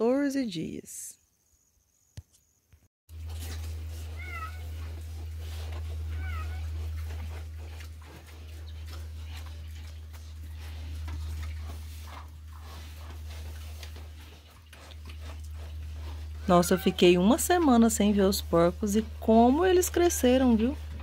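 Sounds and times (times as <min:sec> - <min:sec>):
pigs scuffing and clicking: 0:03.1 - 0:21.0
steady low rumble: 0:03.2 - 0:21.0
pigs squealing: 0:04.0 - 0:11.6, 0:14.6 - 0:18.7.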